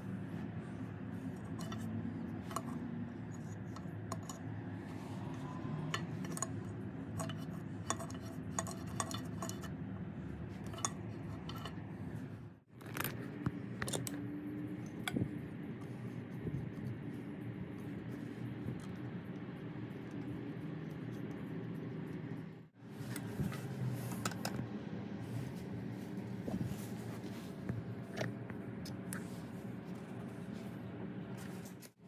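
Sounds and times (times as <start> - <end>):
steady low hum: 0.0 - 32.0
metal parts clicking: 12.8 - 13.2.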